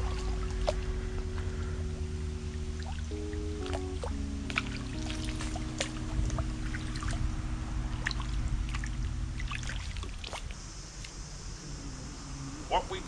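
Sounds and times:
water splashing and trickling: 0:00.0 - 0:07.2, 0:07.9 - 0:11.1
held music chord: 0:00.0 - 0:10.6.

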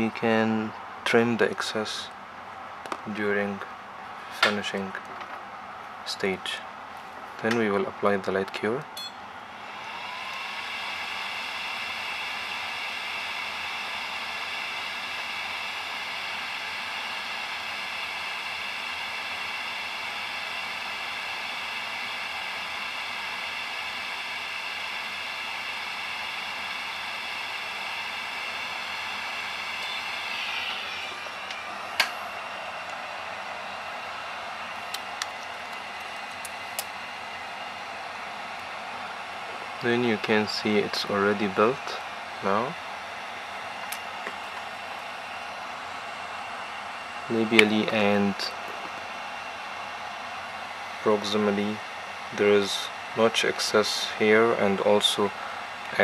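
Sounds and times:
cooling fan whining hum: 0:00.0 - 0:56.0.

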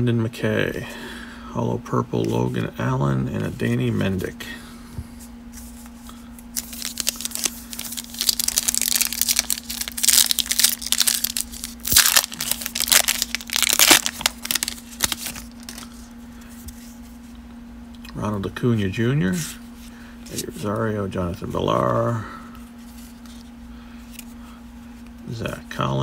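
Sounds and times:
foil wrapper crinkling and tearing: 0:06.5 - 0:16.1.

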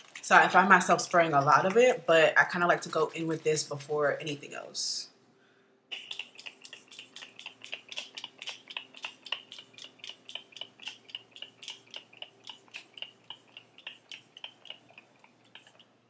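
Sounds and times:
spray bottle click and hiss: 0:05.9 - 0:15.8.

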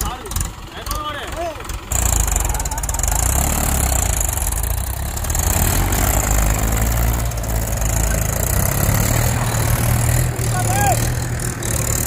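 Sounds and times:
tractor diesel engines running: 0:00.0 - 0:12.0.

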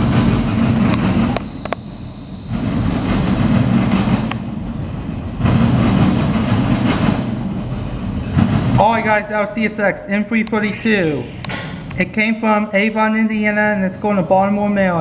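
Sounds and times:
train wheels rumbling on rail: 0:00.0 - 0:14.0
sharp clicks: 0:00.9 - 0:03.2.

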